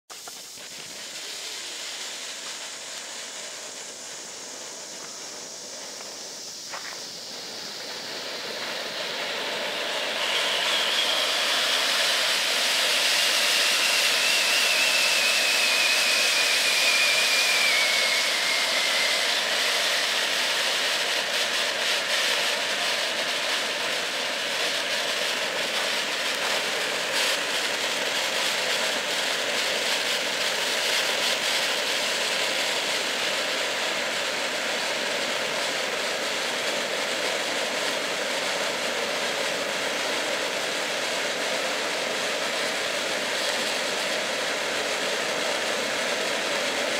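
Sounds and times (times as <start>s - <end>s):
firework fountain hissing: 0.0s - 46.9s
whistle sliding down in pitch: 10.0s - 20.7s.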